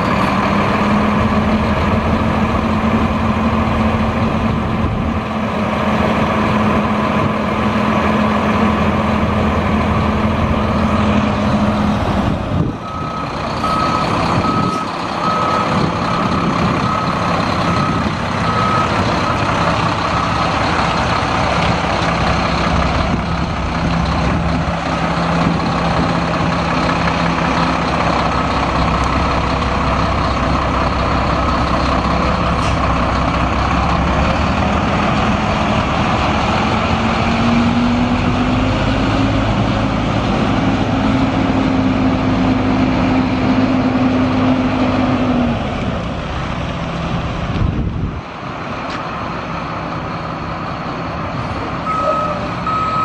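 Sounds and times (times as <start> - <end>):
diesel truck engine running: 0.0 - 53.0
backup alarm beeps: 51.9 - 53.0.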